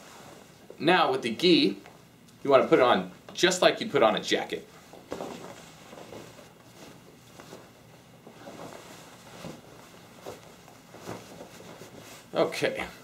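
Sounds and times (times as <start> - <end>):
fabric rustling: 4.7 - 12.6.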